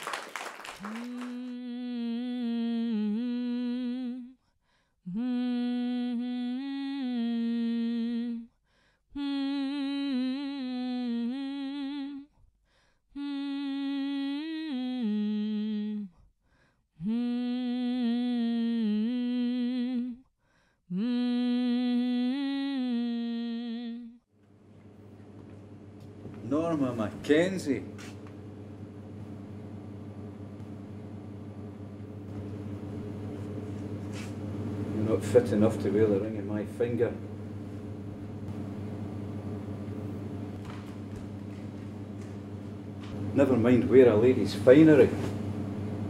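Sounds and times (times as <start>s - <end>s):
person humming a slow tune: 0.8s - 4.4s, 5.0s - 12.4s, 13.1s - 16.3s, 17.0s - 20.3s, 20.9s - 24.2s.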